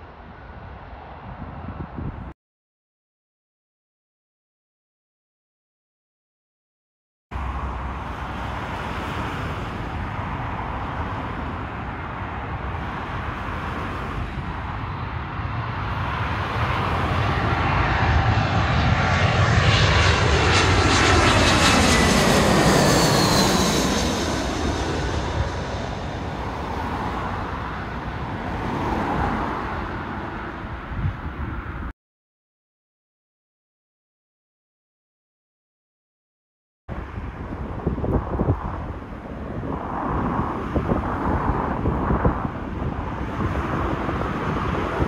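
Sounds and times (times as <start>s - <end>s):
jet airliner passing overhead: 0.0s - 2.4s, 7.4s - 31.9s, 36.9s - 45.0s.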